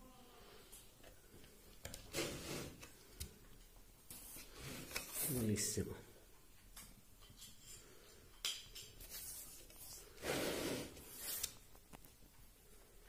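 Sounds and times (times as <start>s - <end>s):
rubbing or scraping: 2.1s - 2.8s, 4.1s - 5.4s, 9.0s - 11.6s.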